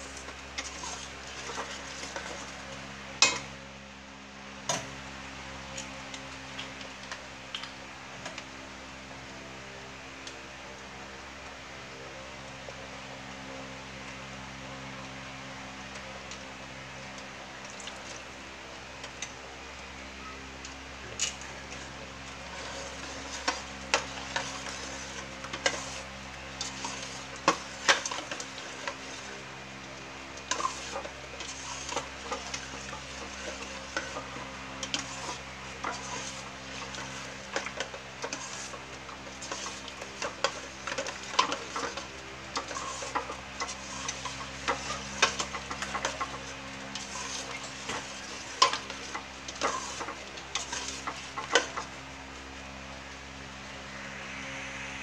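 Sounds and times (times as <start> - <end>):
metal ladle scraping a pot: 22.4 - 29.3, 30.5 - 51.9
low hum: 51.8 - 55.0.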